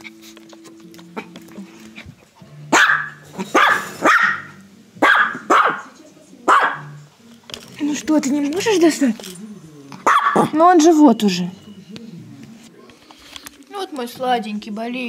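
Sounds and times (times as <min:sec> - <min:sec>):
puppy barking: 0:02.7 - 0:07.0, 0:10.0 - 0:10.6.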